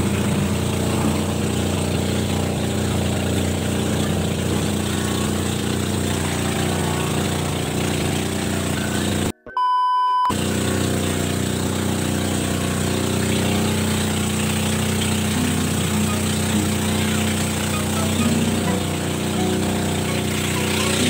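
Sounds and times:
small boat engine droning: 0.0 - 9.4, 10.0 - 21.0
short high beep: 8.7 - 10.3.

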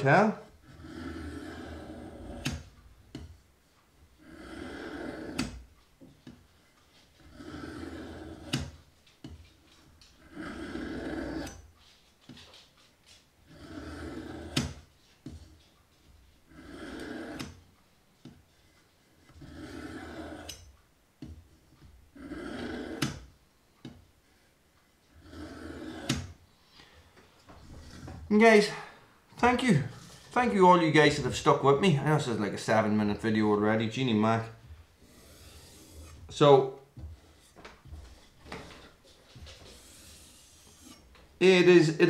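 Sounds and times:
stone rasping along knife blade: 35.0 - 36.2, 39.6 - 41.1.

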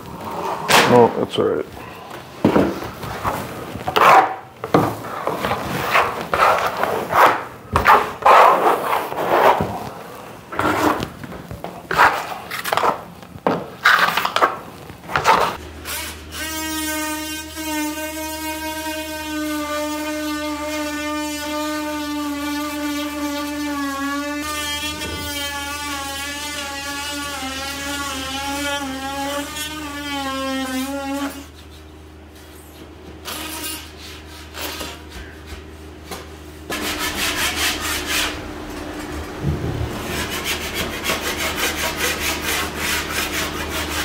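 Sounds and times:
trowel scraping on floor: 0.0 - 1.1, 2.4 - 16.6, 32.7 - 35.7
oscillating multi-tool buzzing: 15.8 - 31.5.

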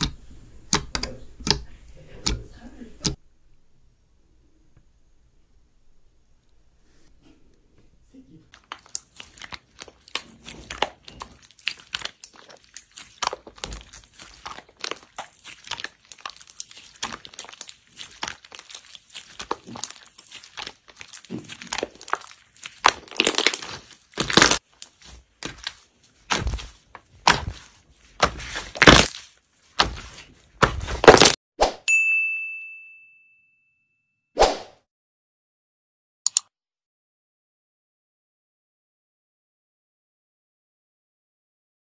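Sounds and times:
slime clicking and popping: 8.6 - 31.4.

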